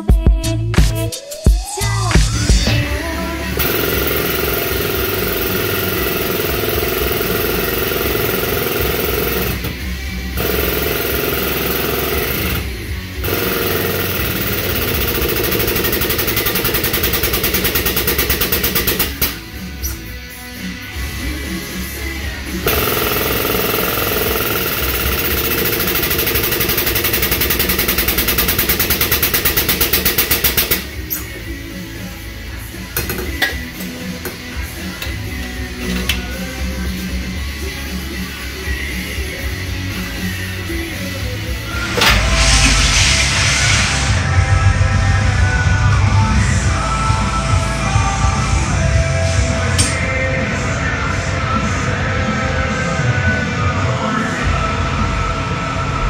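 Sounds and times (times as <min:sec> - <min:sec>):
motor-driven machine pulsing: 0:03.6 - 0:09.8, 0:10.4 - 0:19.4, 0:22.6 - 0:30.8.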